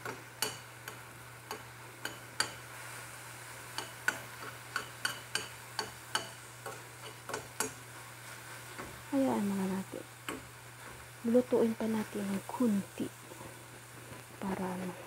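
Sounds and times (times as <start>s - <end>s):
onions sizzling: 0.0s - 15.0s
metal spoon scraping a pan: 3.6s - 9.0s.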